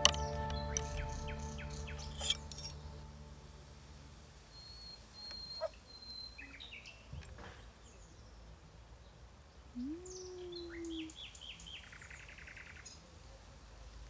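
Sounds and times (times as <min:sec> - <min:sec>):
bird chirps: 0:00.0 - 0:03.7, 0:04.4 - 0:07.1
background music: 0:00.0 - 0:05.2.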